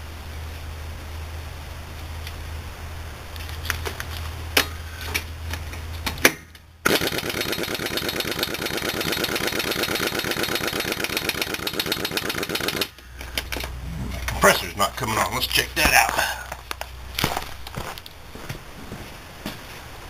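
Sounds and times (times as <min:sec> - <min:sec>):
impact wrench rattling: 0:06.9 - 0:13.7.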